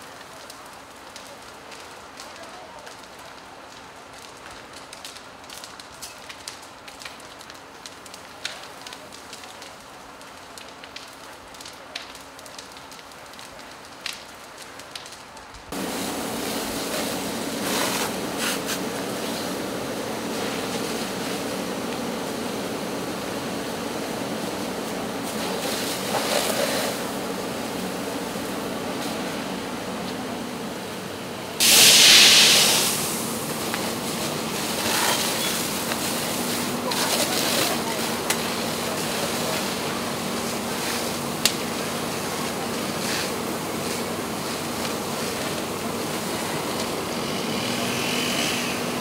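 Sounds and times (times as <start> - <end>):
fire crackling and popping: 0.0 - 49.0
fire hose spraying hiss: 15.7 - 49.0.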